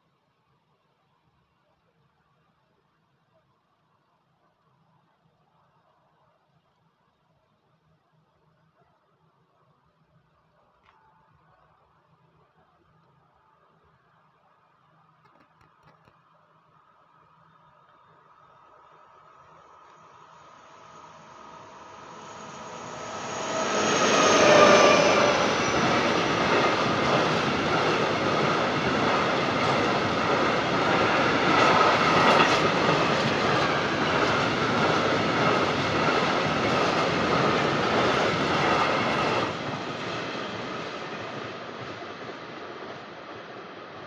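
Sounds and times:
high wheel squeal: 20.8s - 27.6s
freight train wagons rumbling: 21.2s - 44.0s.

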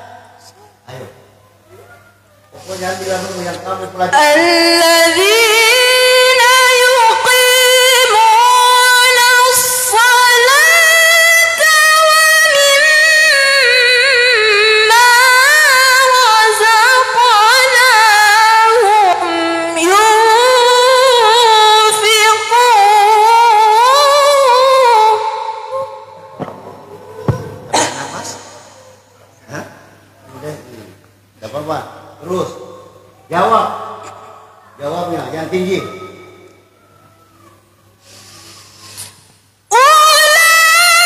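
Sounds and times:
woman chanting into a microphone: 4.1s - 26.8s, 39.7s - 41.0s.

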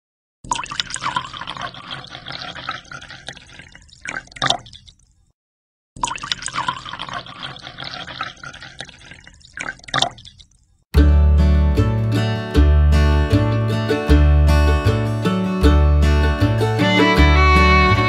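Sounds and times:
water pouring into glass tank: 0.5s - 5.3s, 6.0s - 10.8s.

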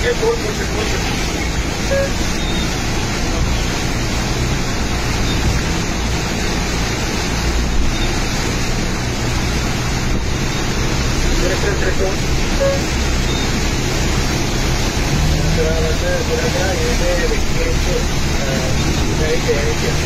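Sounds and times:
heavy rainstorm: 0.0s - 20.0s
wind: 0.0s - 20.0s.

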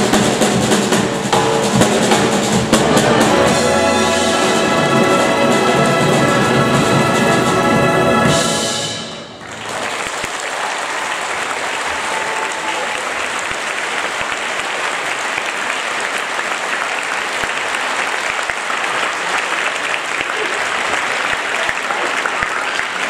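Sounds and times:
concert band final chord: 1.3s - 9.6s
audience applauding: 9.4s - 23.0s.

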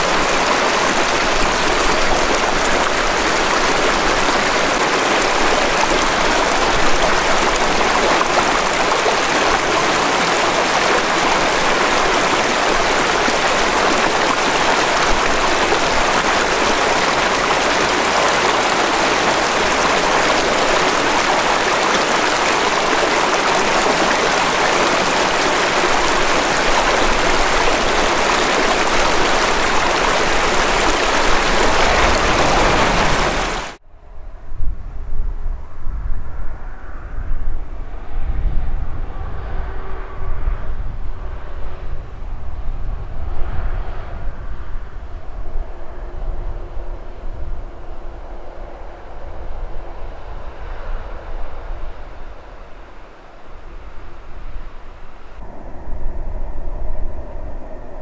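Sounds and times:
stream rushing over stones: 0.0s - 33.8s.

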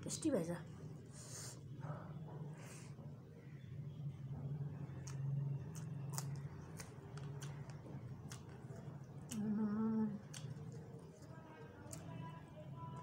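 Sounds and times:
low hum: 0.6s - 13.0s
mouth and finger eating clicks: 4.9s - 10.9s.

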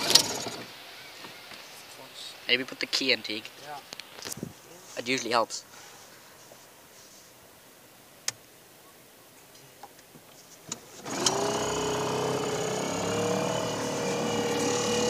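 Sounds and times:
outboard engine running: 11.0s - 15.0s
starter cord pull: 11.0s - 15.0s.

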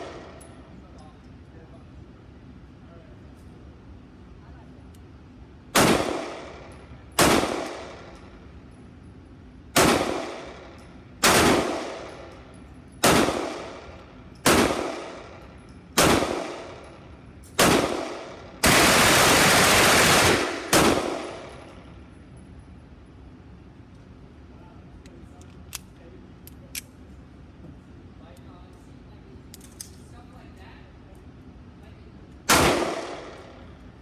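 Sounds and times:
automatic weapon fire: 5.8s - 8.1s, 9.8s - 12.1s, 13.0s - 15.4s, 16.0s - 16.8s, 17.6s - 21.6s, 32.5s - 33.6s
pistol shots with echo: 5.8s - 8.2s, 9.8s - 12.3s, 13.0s - 15.4s, 16.0s - 16.8s, 17.6s - 21.6s, 32.5s - 33.6s.

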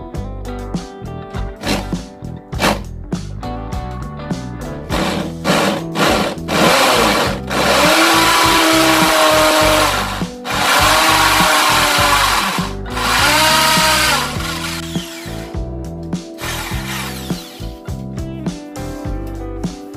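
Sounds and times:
background music: 0.0s - 19.9s
electric drill boring into masonry: 1.6s - 1.9s, 2.6s - 2.8s, 4.9s - 15.5s, 16.4s - 17.8s.

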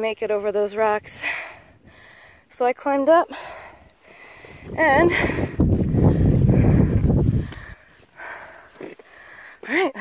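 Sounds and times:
wind buffeting microphone: 3.6s - 8.6s.

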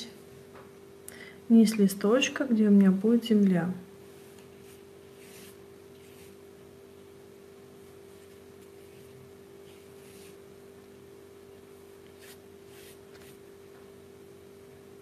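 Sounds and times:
steady low hum: 0.0s - 15.0s
paintbrush swishing on paper: 4.1s - 6.6s, 7.7s - 10.7s, 11.6s - 13.6s.

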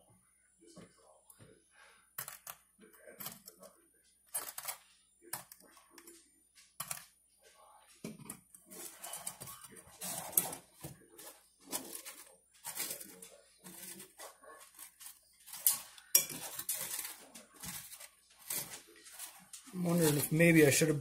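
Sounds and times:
fork clinking and scraping in pan: 4.4s - 4.8s, 8.1s - 20.8s.

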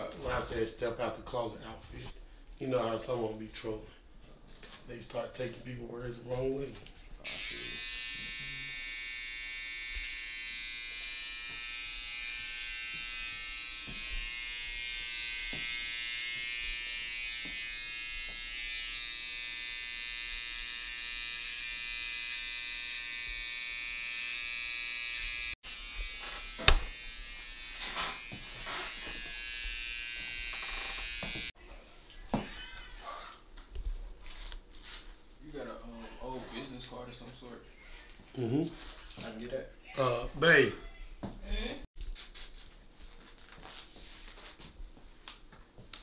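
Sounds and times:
hair trimmer buzzing: 7.2s - 31.6s.

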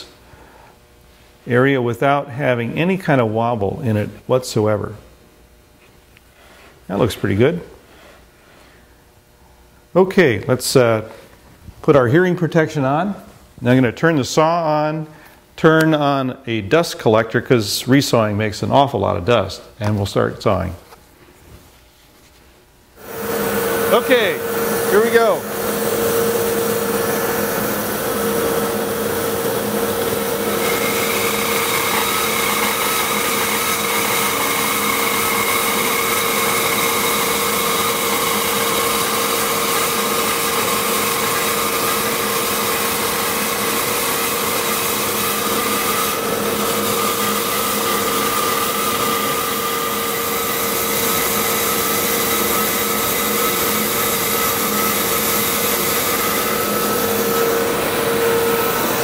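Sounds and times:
bandsaw cutting wood: 23.0s - 59.0s
dust collector rushing: 23.0s - 59.0s
high whine: 23.0s - 59.0s.

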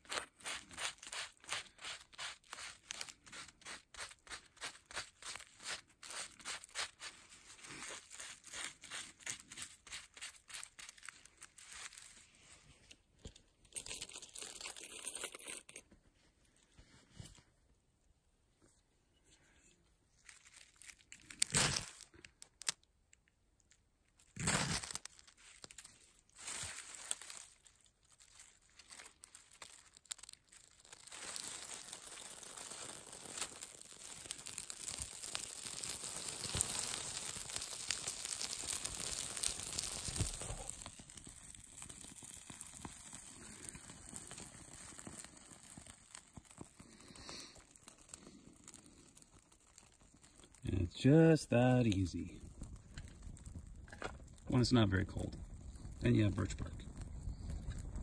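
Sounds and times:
small fire crackling: 0.0s - 14.0s, 19.2s - 58.0s
twigs snapping: 24.4s - 41.2s.

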